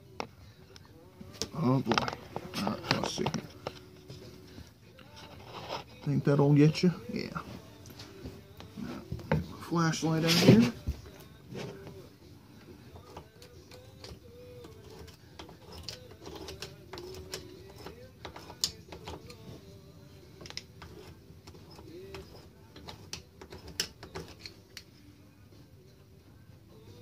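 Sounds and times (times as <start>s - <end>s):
screwdriver clicking on metal: 12.9s - 19.4s, 20.4s - 24.9s.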